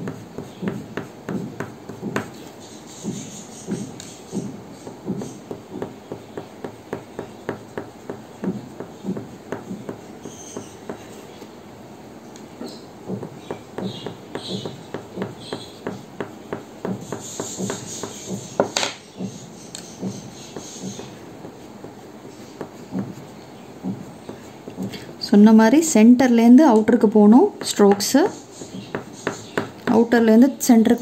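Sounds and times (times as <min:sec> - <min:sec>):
colouring pencil scratching on paper: 0:00.0 - 0:05.9, 0:16.8 - 0:18.6, 0:19.3 - 0:24.6.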